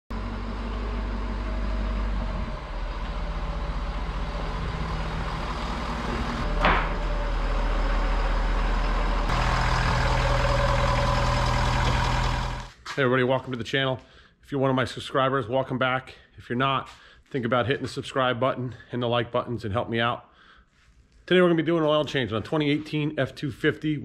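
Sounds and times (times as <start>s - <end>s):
diesel engine running: 0.1s - 12.8s.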